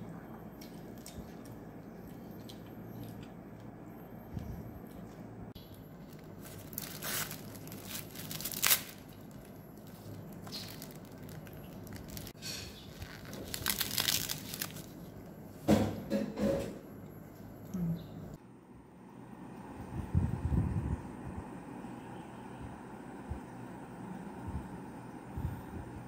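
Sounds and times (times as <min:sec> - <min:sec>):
plastic wrapper crinkling: 0:05.9 - 0:15.3.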